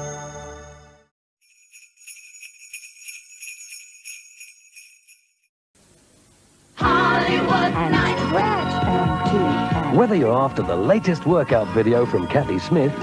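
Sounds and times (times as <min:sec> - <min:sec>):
music: 0:00.0 - 0:01.1, 0:06.8 - 0:13.0
jingle bells shaken: 0:01.4 - 0:05.5.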